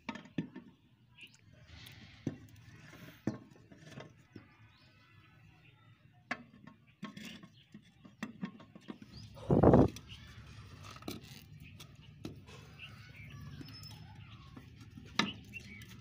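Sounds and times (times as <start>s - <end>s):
plastic rubbing and scraping: 7.0s - 12.8s.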